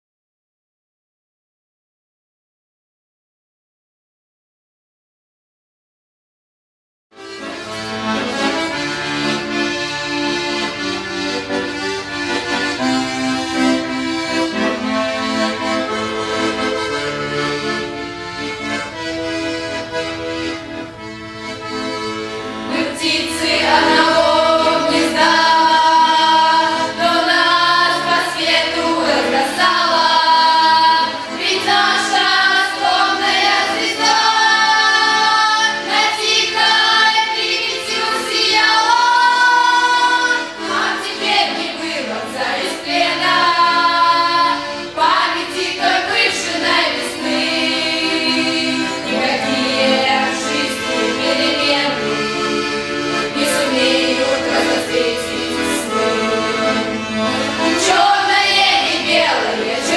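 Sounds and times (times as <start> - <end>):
button accordion: 7.2 - 59.9
girls' choir singing: 22.4 - 59.9.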